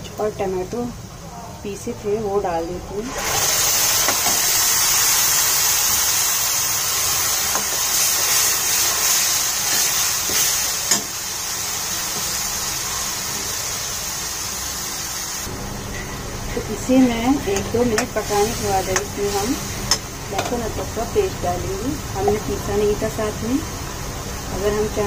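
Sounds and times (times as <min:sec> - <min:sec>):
paste sizzling in butter: 0:03.1 - 0:15.4.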